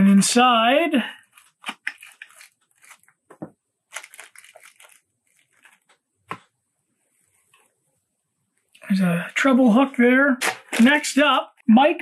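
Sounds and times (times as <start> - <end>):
plastic packaging crinkling: 1.2 - 3.2, 3.9 - 6.0.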